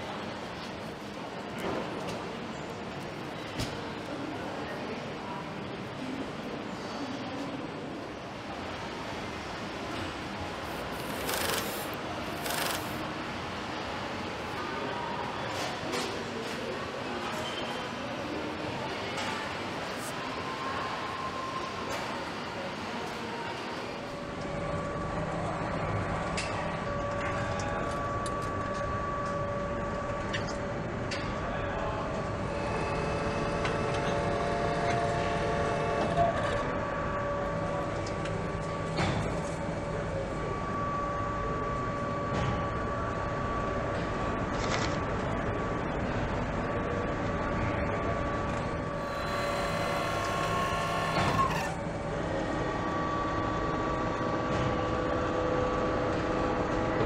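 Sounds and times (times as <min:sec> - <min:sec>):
machinery hum: 0:00.0 - 0:57.0
machine whining tones: 0:48.8 - 0:52.3.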